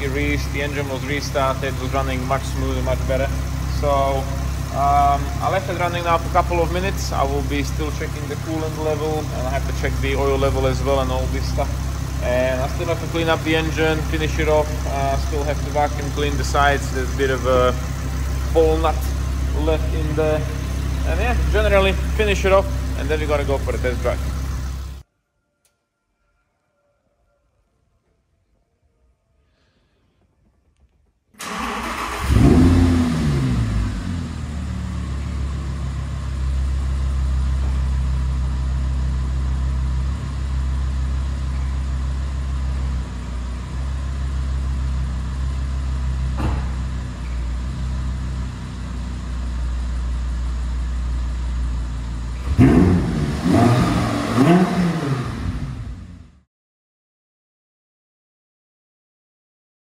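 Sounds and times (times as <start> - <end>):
car engine revving and idling: 0.0 - 25.0, 31.4 - 56.5
sharp knock: 46.4 - 46.8.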